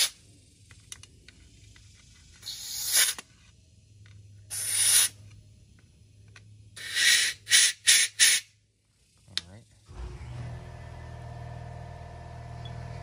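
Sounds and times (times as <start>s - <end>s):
compressed air blow gun hissing: 1.4s - 3.3s, 4.5s - 5.3s, 6.8s - 8.6s.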